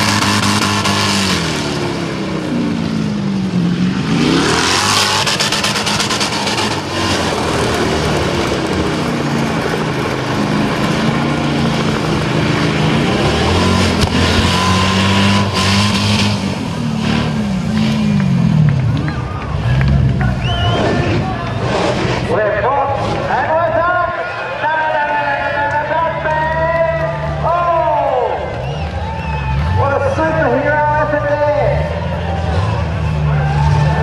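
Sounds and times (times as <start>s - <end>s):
car engine revving high: 0.0s - 23.9s.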